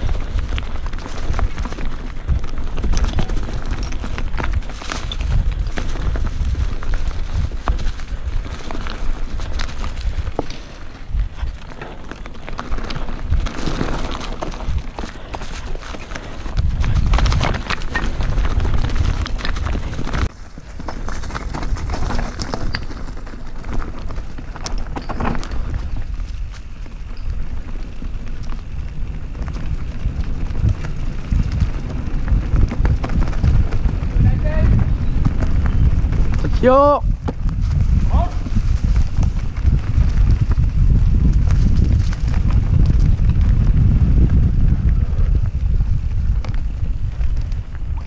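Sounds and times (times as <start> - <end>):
bike tyres crunching over stones: 0.0 - 48.0
pebbles knocking and bike rattling: 0.0 - 48.0
tyres rolling over grass and twigs: 0.0 - 48.0.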